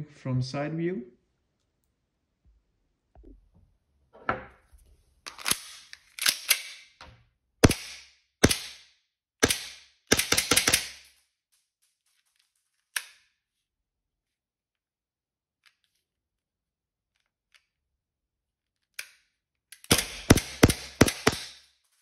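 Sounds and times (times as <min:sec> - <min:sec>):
airsoft pistol firing: 0:07.6 - 0:11.0, 0:19.9 - 0:21.6.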